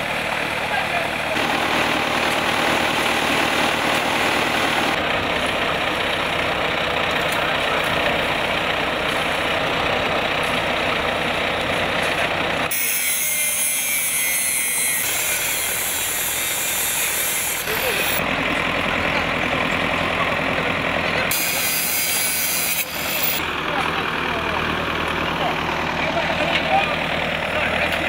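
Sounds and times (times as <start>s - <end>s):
truck engine running: 0.0s - 13.0s, 14.0s - 28.0s
angle grinder whine: 1.1s - 5.6s, 12.5s - 20.3s, 21.0s - 28.0s.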